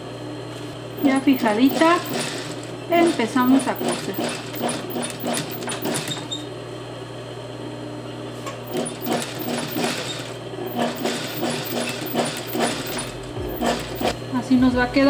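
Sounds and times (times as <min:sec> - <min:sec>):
sewing machine motor hum: 0:00.9 - 0:06.6, 0:08.6 - 0:14.3
sewing machine needle stitching: 0:01.0 - 0:06.5, 0:08.7 - 0:14.2.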